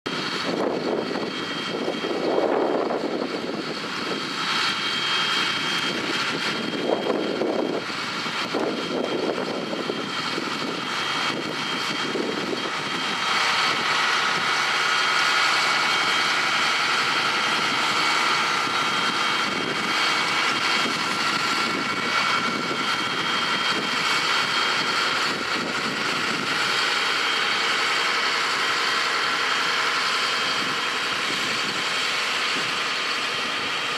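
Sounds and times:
high whine: 0.1s - 33.9s
low gusts of noise: 0.1s - 33.9s
tractor engine running: 0.1s - 33.9s.

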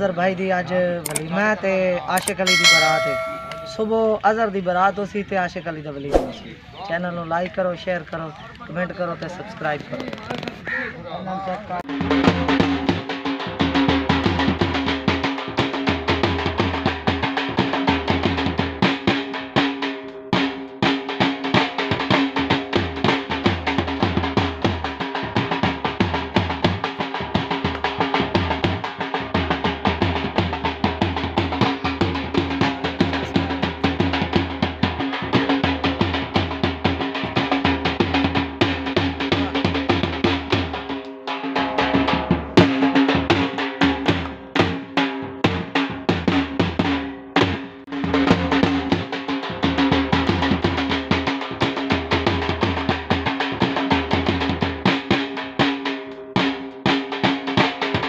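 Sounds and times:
barrel drum beaten with sticks: 2.4s - 4.0s.

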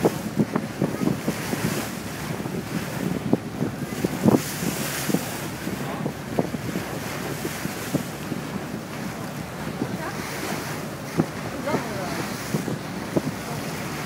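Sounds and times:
wash of harbour water: 0.0s - 14.0s
wind buffeting microphone: 0.0s - 14.0s.

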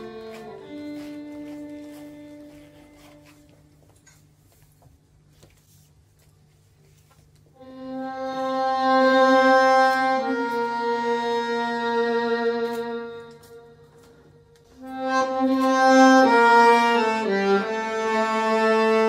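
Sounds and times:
tango on violin and bandoneon: 0.0s - 3.5s, 7.6s - 13.9s, 14.8s - 19.0s.

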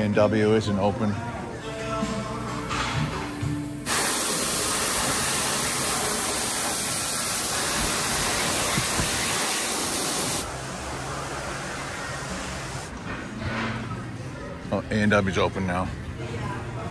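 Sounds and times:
loud steady hiss: 3.8s - 10.5s.

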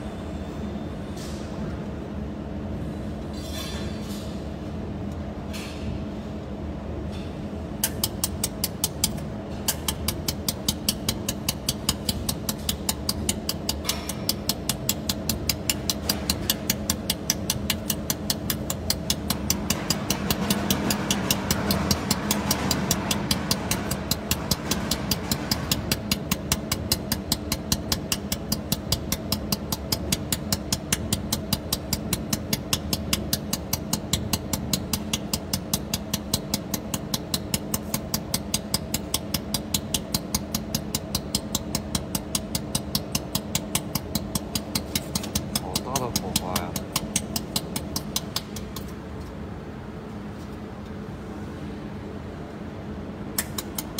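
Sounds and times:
machine hum: 6.1s - 53.9s
laser welder ticking: 7.8s - 48.9s.

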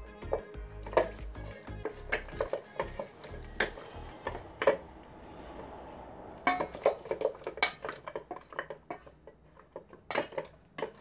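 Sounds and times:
metal bowl clinking and knocking: 0.2s - 4.8s.

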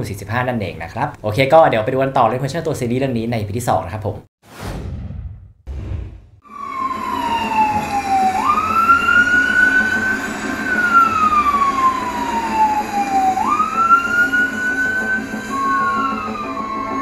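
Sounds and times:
ambulance siren wailing: 6.4s - 17.0s.

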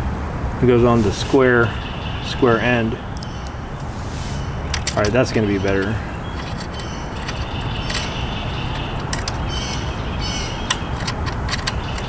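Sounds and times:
faint bird chirps: 1.6s - 3.6s, 5.3s - 10.9s.

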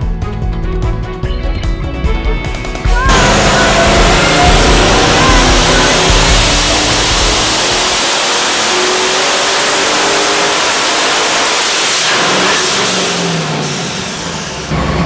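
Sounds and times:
engine revving under load: 3.0s - 15.0s.

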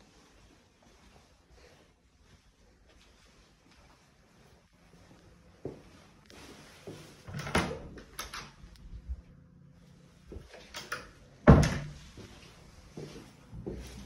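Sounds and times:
wardrobe door banging shut: 11.4s - 12.0s.

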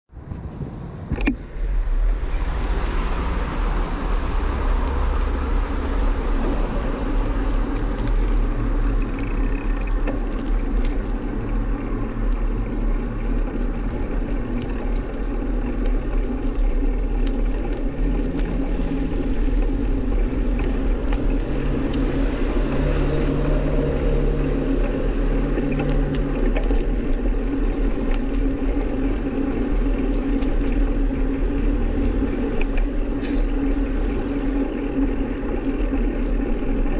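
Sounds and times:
low road rumble: 0.1s - 36.9s
wind rushing over microphone: 0.1s - 36.9s.

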